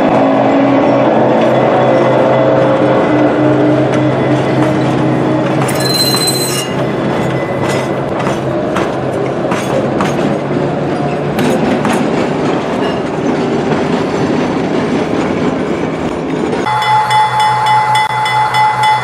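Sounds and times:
railroad cars rolling on track: 0.0 - 19.0
high wheel squeal: 4.0 - 8.0.

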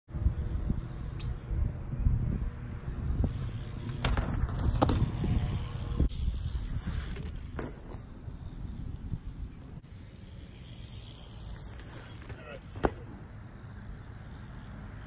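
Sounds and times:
wind on microphone: 0.1 - 7.2
bike rolling on concrete: 0.1 - 15.0
bike clattering: 3.2 - 15.0.

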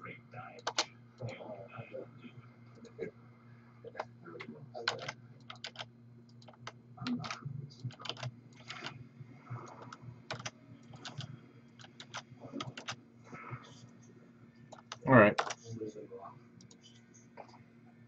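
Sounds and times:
faint steady hum: 0.0 - 18.0
typing on computer keyboard: 0.6 - 0.9, 4.8 - 8.9, 9.7 - 13.0, 14.7 - 15.6.

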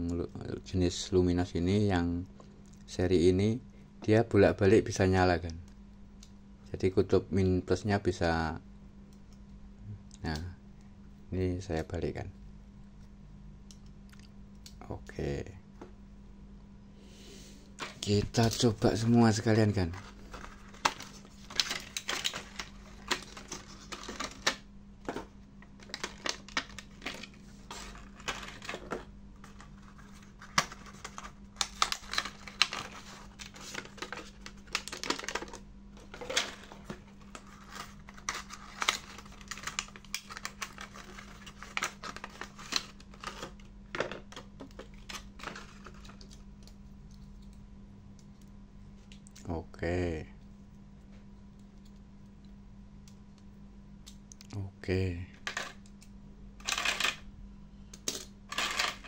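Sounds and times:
steady low hum: 0.0 - 59.0
plastic packaging clicks and crinkles: 19.8 - 46.4.

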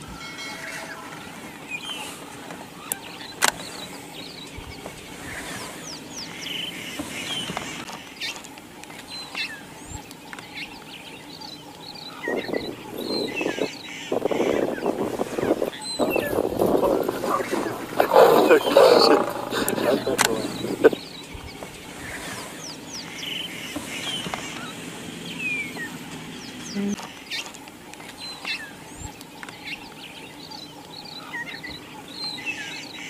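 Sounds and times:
open bush ambience: 0.0 - 33.0
small birds chirping: 0.6 - 33.0
lion growling: 12.4 - 13.7, 14.3 - 21.0.

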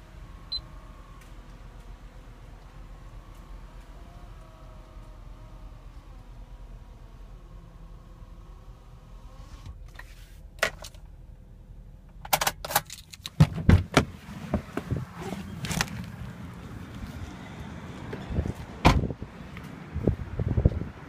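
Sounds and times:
car door unlatching and opening: 12.1 - 16.1, 18.8 - 19.2.

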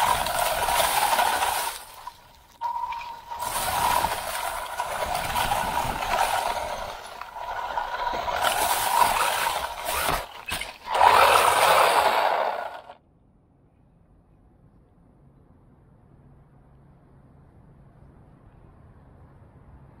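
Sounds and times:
chassis rattling over grass: 0.0 - 13.0
electric motor whining: 0.0 - 13.0.

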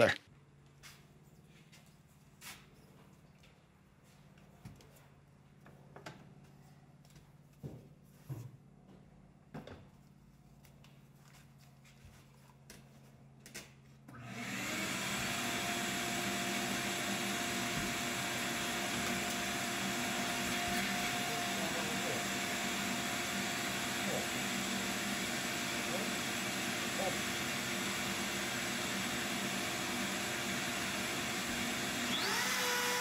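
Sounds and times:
shop vacuum motor whine: 14.1 - 33.0.

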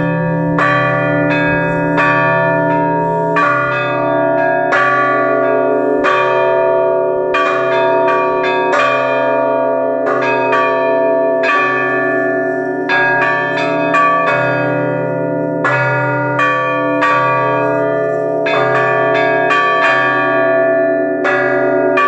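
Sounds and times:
heavy deep bell striking: 0.0 - 9.0.

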